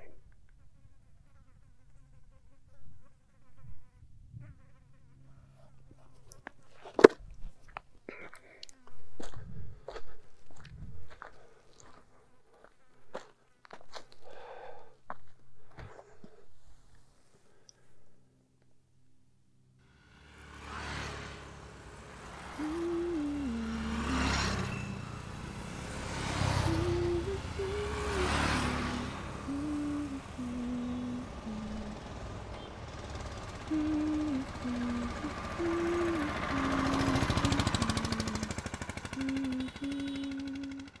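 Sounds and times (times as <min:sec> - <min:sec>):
vehicles passing by: 0:19.5 - 0:41.0
slow tune of held notes: 0:26.4 - 0:32.1, 0:33.7 - 0:41.0.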